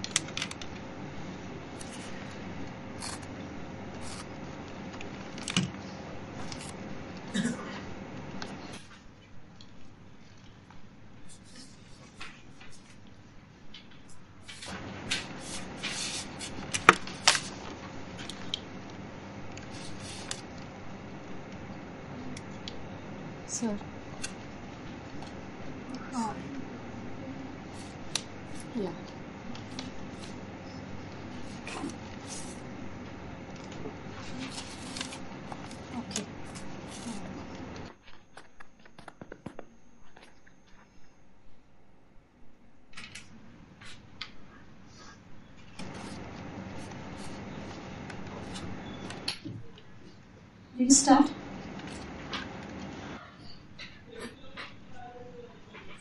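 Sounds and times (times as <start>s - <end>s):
low room hum: 0.0s - 56.0s
paper crackling and rustling: 1.6s - 7.4s, 14.0s - 21.7s, 27.7s - 40.4s, 45.7s - 49.3s.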